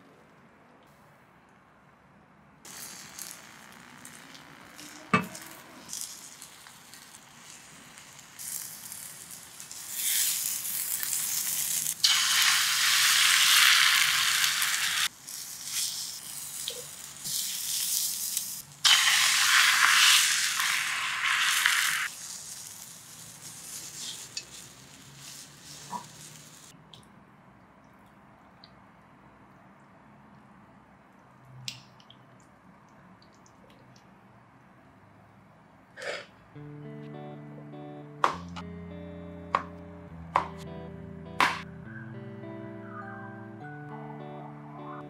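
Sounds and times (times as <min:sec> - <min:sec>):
egg sizzling in a pan: 0:02.7 - 0:26.7
sharp knock: 0:41.4 - 0:41.6.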